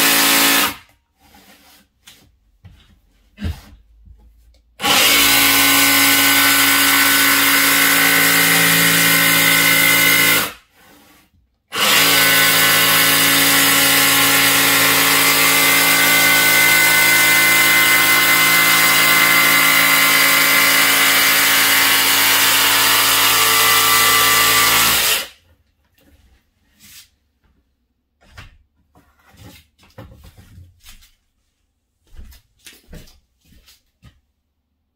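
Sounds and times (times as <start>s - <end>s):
jigsaw sawing through board: 0.0s - 1.6s, 4.8s - 25.4s.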